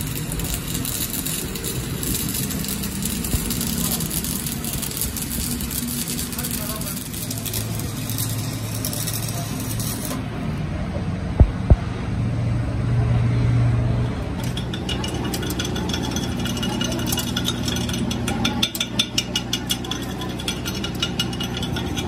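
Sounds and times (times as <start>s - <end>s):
steady low hum: 11.2s - 13.0s
metallic taps and scrapes: 14.4s - 22.0s.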